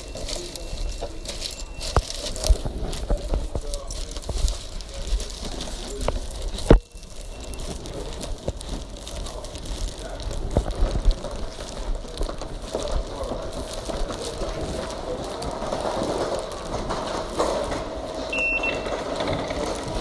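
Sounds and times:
steady background noise: 0.0s - 20.0s
card reader short high beep: 18.3s - 19.1s.

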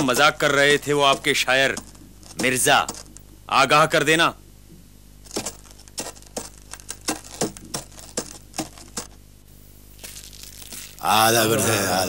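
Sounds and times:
sharp knocks or clicks: 0.0s - 3.2s.

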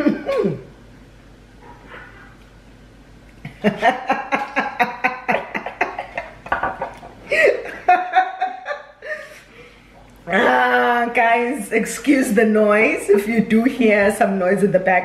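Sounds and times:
woman and girl laughing: 3.5s - 9.4s.

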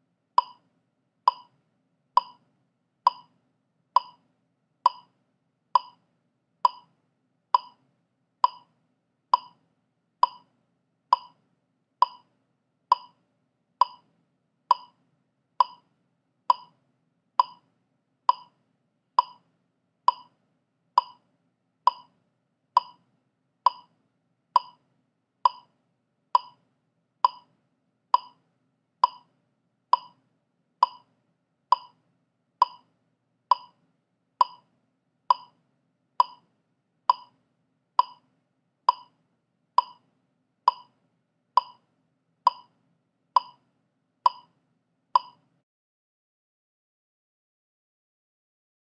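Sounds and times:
metronome clicks: 0.4s - 0.6s, 2.2s - 2.4s, 3.1s - 3.3s, 4.0s - 4.2s, 4.9s - 5.1s, 5.8s - 6.0s, 6.7s - 6.9s, 7.6s - 7.8s, 8.4s - 8.7s, 9.4s - 9.6s, 10.2s - 10.5s, 11.2s - 11.4s, 12.0s - 12.3s, 12.9s - 13.2s, 13.8s - 14.0s, 14.7s - 15.0s, 15.6s - 15.8s, 16.5s - 16.7s, 17.4s - 17.6s, 18.3s - 18.5s, 19.2s - 19.4s, 20.1s - 20.3s, 21.0s - 21.2s, 21.9s - 22.1s, 22.8s - 23.0s, 23.7s - 23.9s, 24.6s - 24.8s, 25.5s - 25.7s, 26.4s - 26.6s, 27.3s - 27.5s, 28.2s - 28.4s, 29.0s - 29.3s, 30.0s - 30.2s, 30.8s - 31.0s, 31.7s - 32.0s, 32.6s - 32.8s, 33.5s - 33.8s, 34.4s - 34.6s, 35.3s - 35.5s, 36.2s - 36.4s, 37.1s - 37.3s, 38.0s - 38.2s, 38.9s - 39.1s, 39.8s - 40.0s, 40.7s - 40.9s, 41.6s - 41.8s, 42.5s - 42.7s, 43.4s - 43.6s, 44.3s - 44.5s, 45.2s - 45.4s.

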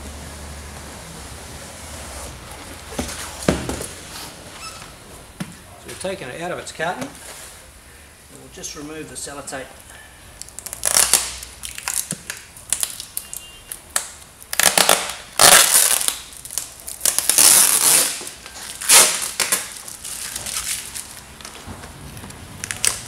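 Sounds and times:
tape ripping off cardboard: 10.4s - 21.6s, 22.6s - 23.0s.

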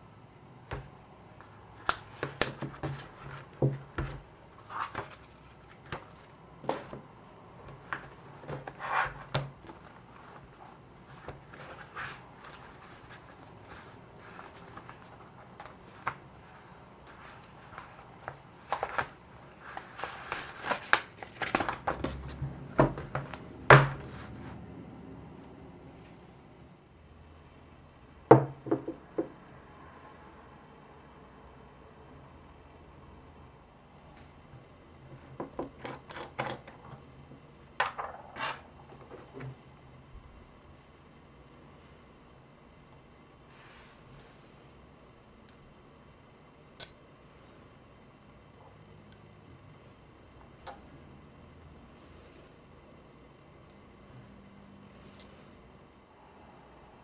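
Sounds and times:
paper pages rustling: 4.6s - 7.0s, 7.7s - 23.4s.

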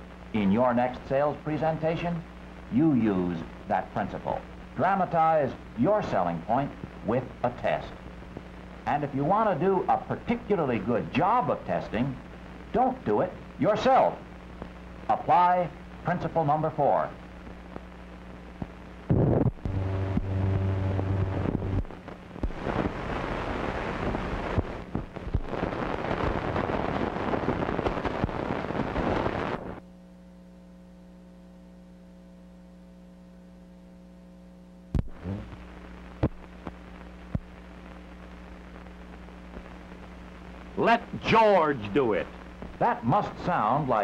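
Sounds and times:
loud crackling hiss: 0.0s - 29.8s
mains hum: 0.0s - 44.0s
low buzz: 17.5s - 40.7s
sharp pops: 36.2s - 37.6s.

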